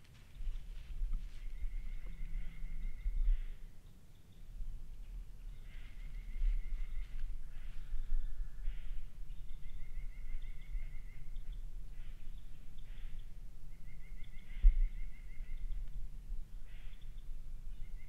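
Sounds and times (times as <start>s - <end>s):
rustles in dry leaves: 0.0s - 2.0s.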